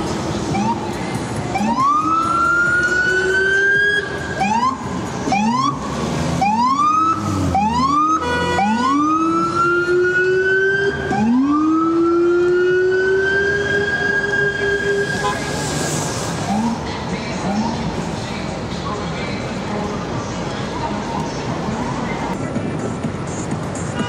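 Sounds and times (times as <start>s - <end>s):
street traffic: 0.0s - 24.0s
emergency vehicle siren wailing: 0.5s - 18.1s.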